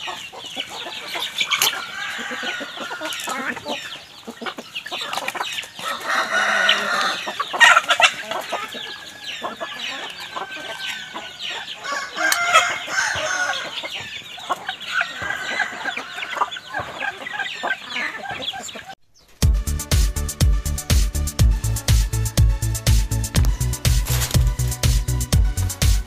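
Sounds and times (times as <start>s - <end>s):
chickens clucking: 0.0s - 19.4s
rooster crowing: 1.5s - 3.6s, 5.8s - 8.0s, 8.6s - 13.8s, 14.9s - 16.6s.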